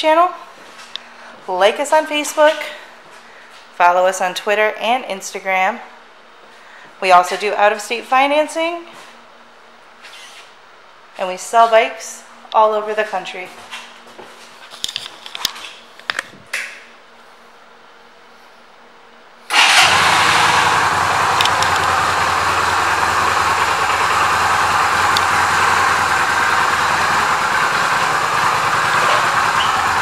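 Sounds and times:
motorcycle engine starting and idling: 19.5s - 30.0s.

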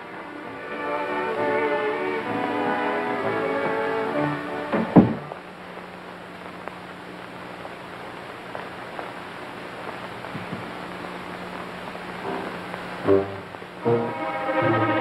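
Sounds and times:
film soundtrack hiss: 0.0s - 15.0s
faint ticks: 5.7s - 12.9s.

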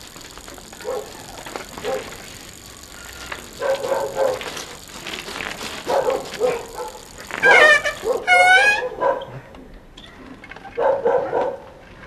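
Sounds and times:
bicycle riding past: 0.0s - 9.2s
dog barking: 0.8s - 1.2s, 1.8s - 2.2s, 5.9s - 7.0s, 8.0s - 9.4s, 10.8s - 11.8s.

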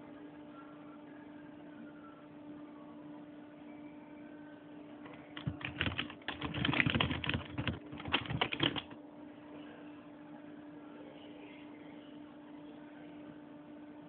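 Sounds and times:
rapid light clicks and taps: 5.1s - 9.0s.

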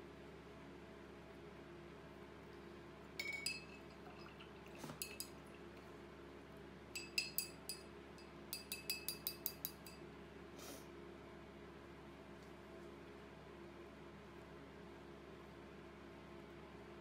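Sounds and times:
brush clinking against glass: 3.2s - 5.6s, 7.0s - 10.0s.

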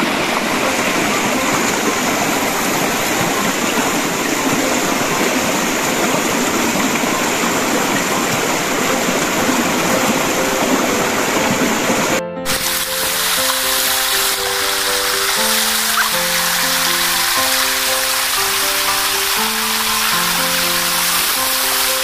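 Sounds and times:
music: 0.0s - 22.0s
stream water rushing: 0.0s - 22.0s
hands stirring water: 12.5s - 22.0s.

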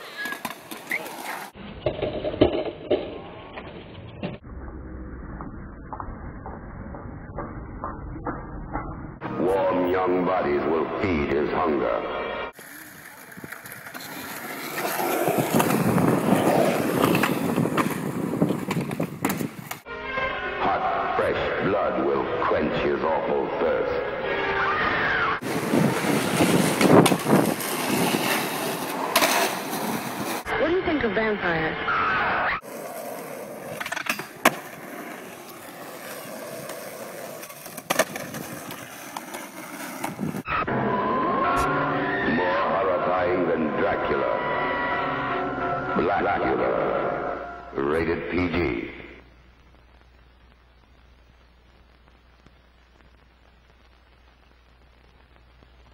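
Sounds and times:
skateboard wheels rolling on concrete: 0.0s - 19.9s, 21.2s - 45.9s
skateboard clacks: 33.0s - 40.3s.

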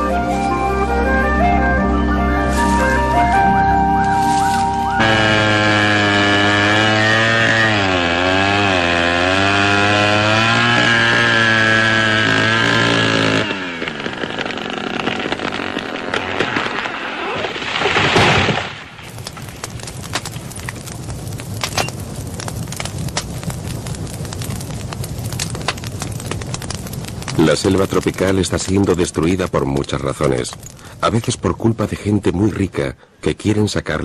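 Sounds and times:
burning brush crackling: 0.0s - 34.0s
chainsaw cutting tree trunk: 4.7s - 17.1s.

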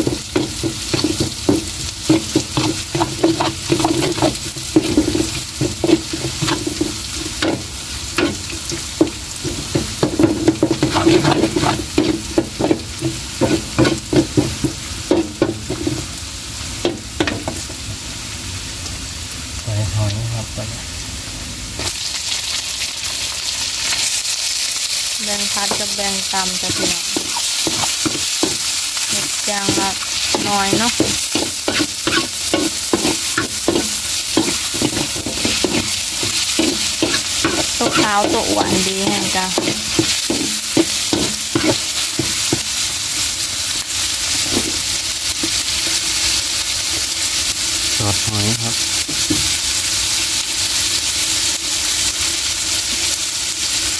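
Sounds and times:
metal spatula scraping a pan: 0.0s - 16.1s, 25.6s - 42.8s
oil sizzling in a wok: 0.0s - 53.9s.

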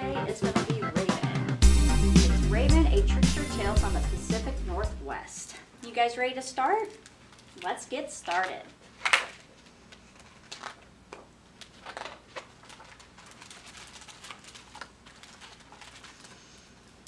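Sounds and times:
low steady hum: 1.6s - 8.9s.

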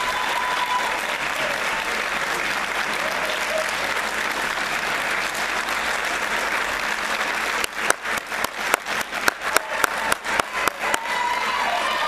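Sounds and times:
audience applauding: 0.0s - 12.0s
sharp claps close by: 2.4s - 11.1s.

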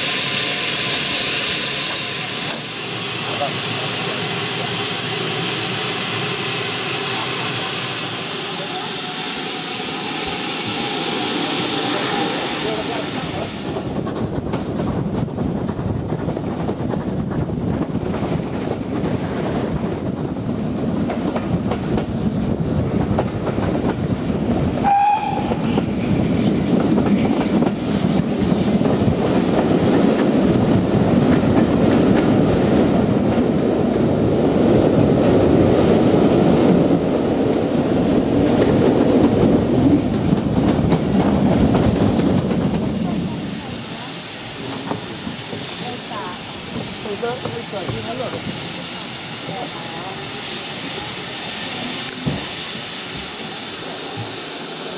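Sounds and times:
railway carriages rumbling on track: 0.0s - 54.9s
steam locomotive whistle: 24.8s - 25.8s.

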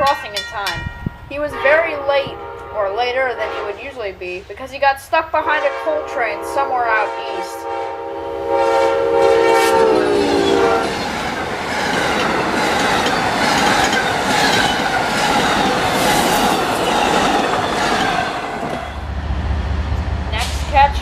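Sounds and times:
train horn: 1.4s - 4.1s, 5.4s - 11.1s
train wheels clattering on rails: 10.9s - 19.0s.

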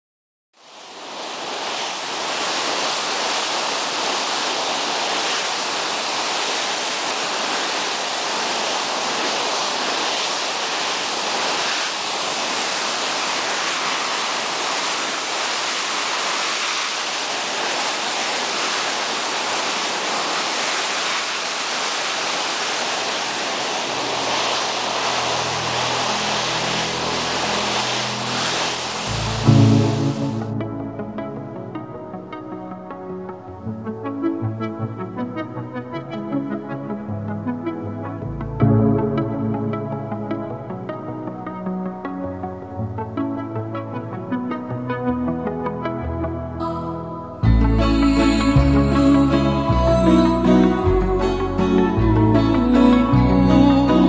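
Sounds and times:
sea water rushing and hissing: 0.6s - 54.0s.

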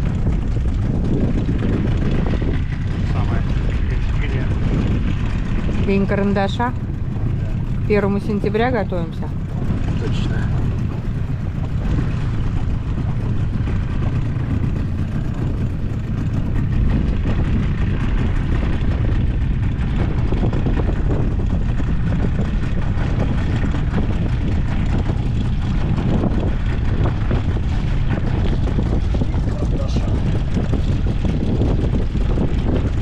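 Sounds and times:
outboard motor running: 0.0s - 33.0s
wind rumble on microphone: 0.0s - 33.0s.

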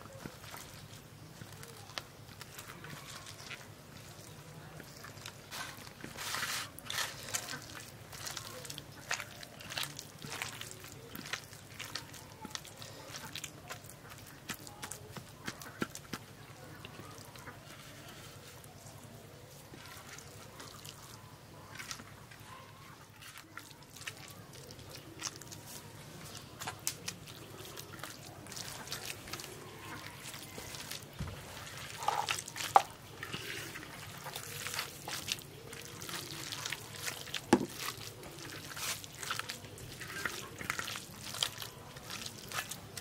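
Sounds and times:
food being mashed by hand: 1.8s - 17.7s, 23.2s - 43.0s.

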